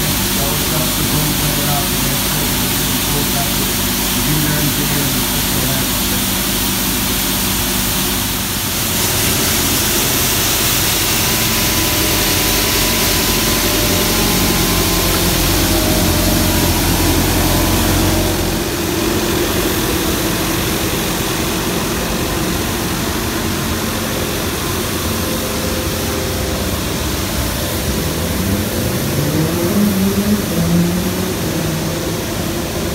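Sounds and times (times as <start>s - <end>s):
loud brush hiss: 0.0s - 32.9s
street sweeper engine drone: 0.0s - 32.9s.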